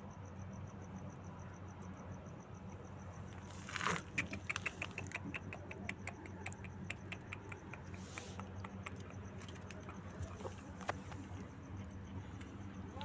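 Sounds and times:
low steady hum: 0.0 - 13.0
light clicks and taps: 3.8 - 11.4.

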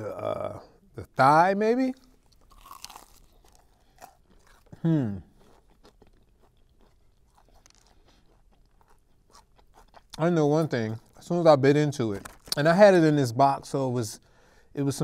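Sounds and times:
chewing crispy chicken: 1.9 - 12.7
person humming: 4.8 - 5.3.

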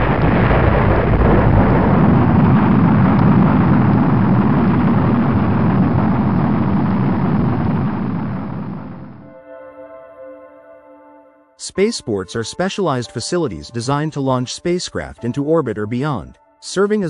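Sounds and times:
rocket launch rumble: 0.0 - 9.2.

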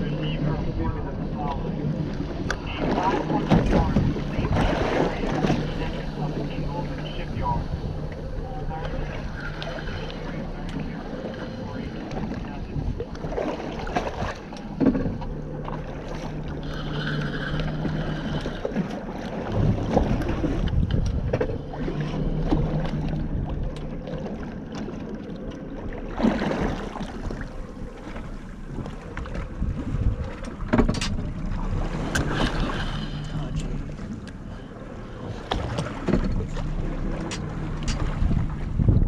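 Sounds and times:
boat motor running: 0.0 - 39.0
knocks and clunks on boat: 0.0 - 39.0
wind buffeting microphone: 11.6 - 16.6, 19.4 - 24.5, 26.4 - 34.2, 35.1 - 39.0.

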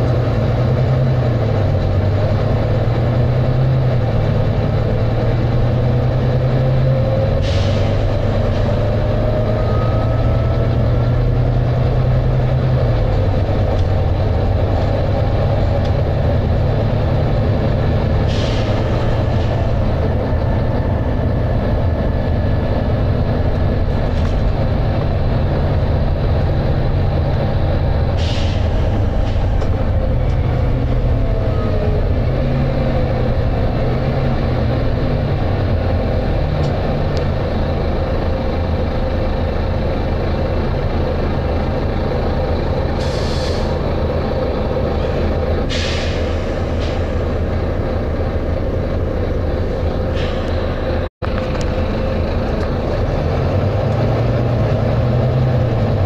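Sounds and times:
bus diesel engine working hard: 0.0 - 56.0
air hisses from bus: 18.2 - 19.2, 28.2 - 28.8, 43.0 - 43.8, 45.7 - 47.3.

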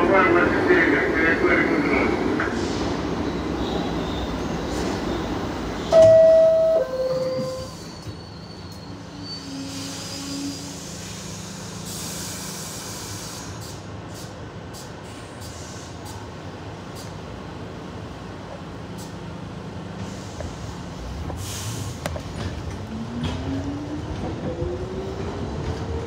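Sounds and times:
train running noise: 0.0 - 26.0
two-note door chime: 5.9 - 7.8.

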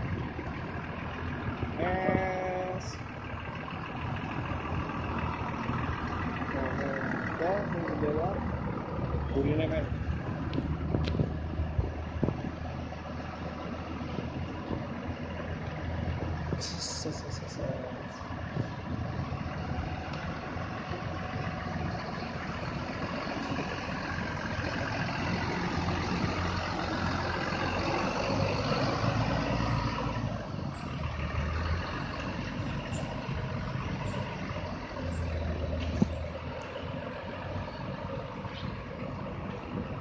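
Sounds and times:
diesel bus engine driving off: 0.0 - 40.0.

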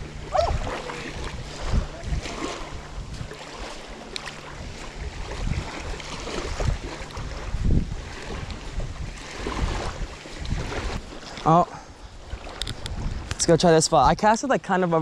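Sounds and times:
wind rumbling on microphone: 0.0 - 14.6
small waves lapping: 0.0 - 15.0.

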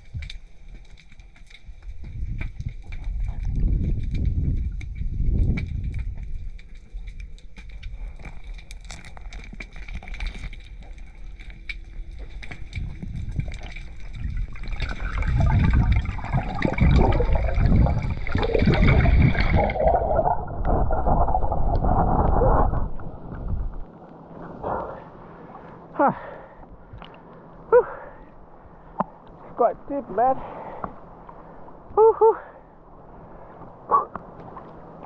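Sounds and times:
low underwater rumble: 0.0 - 32.0
muffled rushing water: 10.1 - 35.0.

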